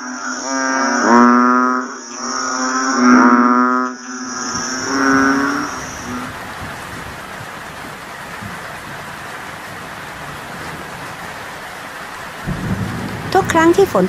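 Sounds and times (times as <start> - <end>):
heavy rain on leaves: 4.1 - 14.0.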